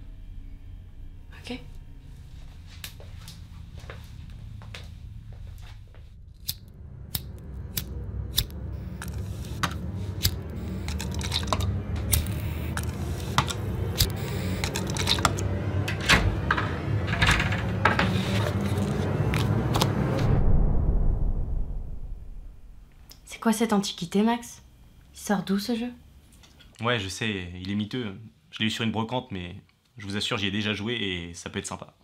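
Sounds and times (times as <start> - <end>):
low rumble: 0.0 - 25.2
small objects clicking and knocking: 8.4 - 15.4.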